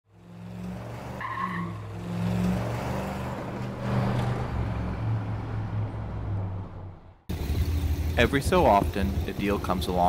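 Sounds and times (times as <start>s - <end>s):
tire squeal: 0.3s - 4.6s
car engine running: 7.0s - 10.0s.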